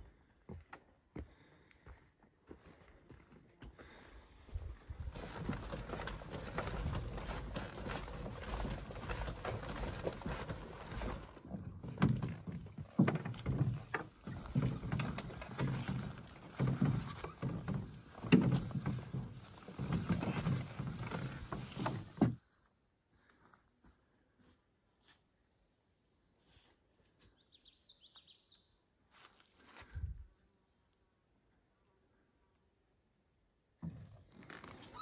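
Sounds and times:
footsteps on forest trail: 0.0s - 25.5s, 26.4s - 30.4s
rustling: 4.8s - 22.4s
canoe thumps and knocks: 5.1s - 22.4s.

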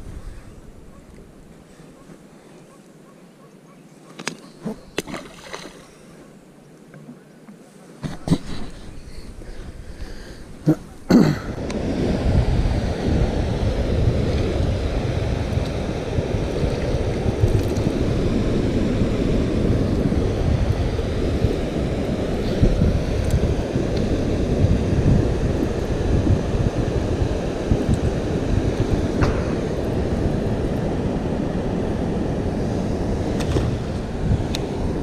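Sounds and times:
wind rumbling on microphone: 0.0s - 2.1s, 8.0s - 35.0s.

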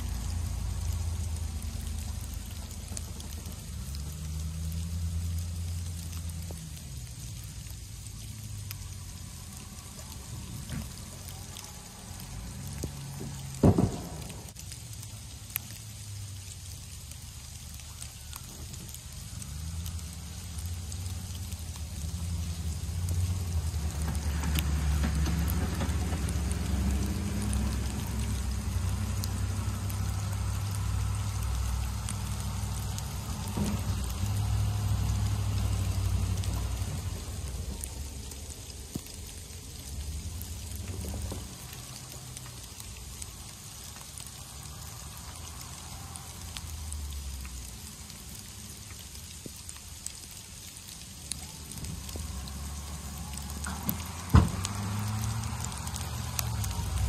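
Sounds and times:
truck engines rumbling: 0.0s - 57.0s
wet hail pattering: 0.0s - 57.0s.

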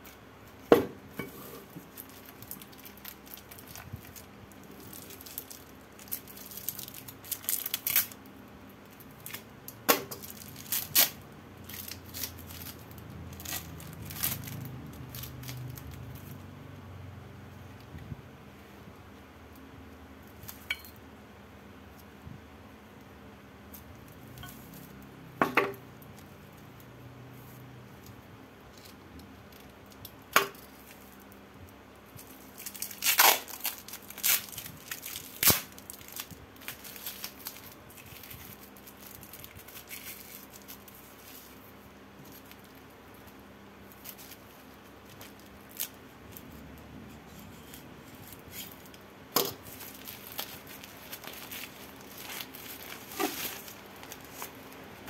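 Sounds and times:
wrapping crinkling: 1.6s - 16.5s, 26.1s - 55.0s
tape peeling and tearing: 4.8s - 8.2s, 10.2s - 16.4s, 32.2s - 41.6s, 49.6s - 54.8s.

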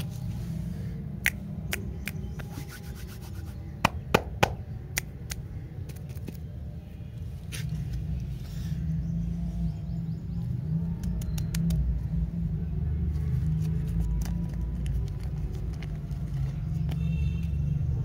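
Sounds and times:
wrapper clicks and crinkles: 13.4s - 17.0s.

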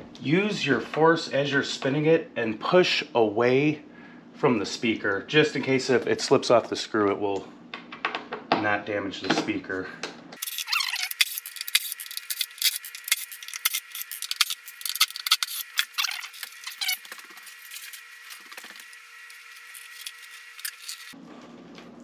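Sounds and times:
screwdriver metallic clicking and rattling: 10.4s - 16.7s.

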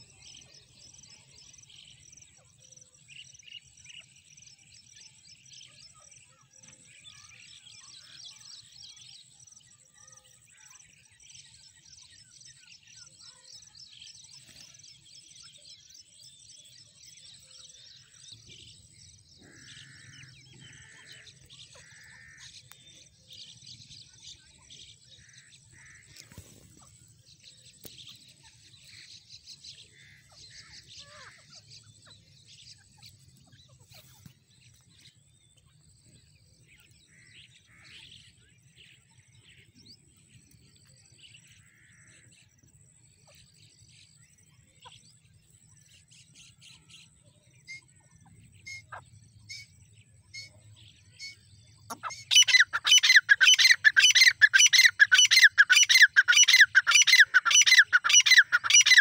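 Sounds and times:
birds chirping softly: 0.0s - 59.0s
loud fast repeated bird call: 52.0s - 59.0s.

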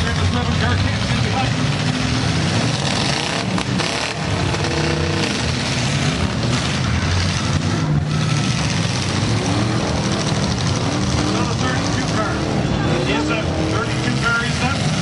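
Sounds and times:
car engines revving: 0.0s - 15.0s.

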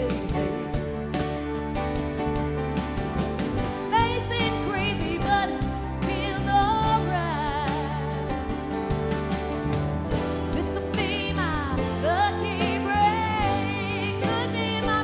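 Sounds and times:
woman singing: 0.0s - 1.1s, 3.9s - 8.4s, 10.5s - 15.0s
country band playing: 0.0s - 15.0s.

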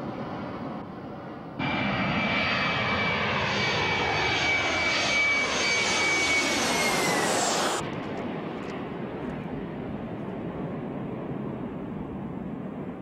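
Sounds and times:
jet airliner flying overhead: 0.0s - 13.0s.

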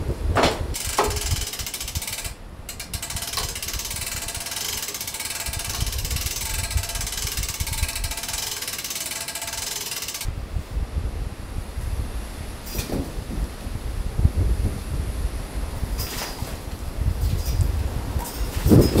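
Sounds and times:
wind rumbling on microphone: 0.0s - 4.8s, 5.4s - 8.4s, 10.3s - 19.0s
winch ratchet clicking: 0.8s - 10.3s.

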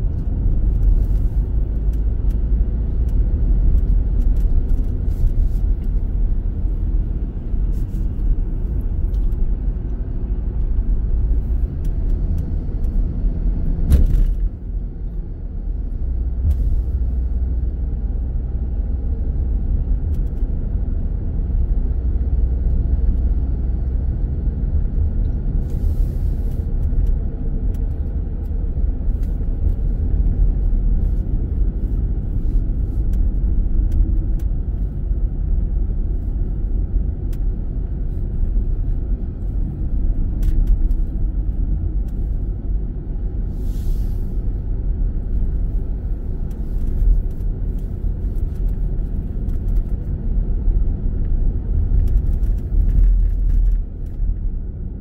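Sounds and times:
road and engine rumble: 0.0s - 55.0s
brief hiss: 43.5s - 44.4s.

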